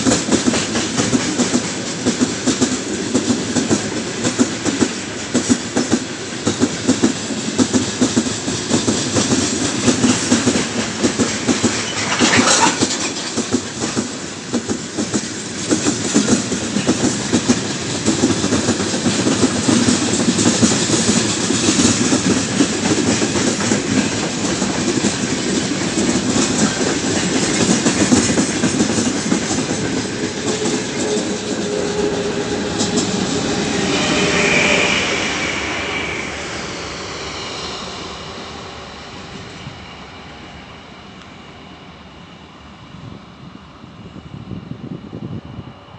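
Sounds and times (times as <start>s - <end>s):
freight train rumbling past: 0.0s - 45.9s
wheels clattering over rail joints: 9.1s - 31.8s.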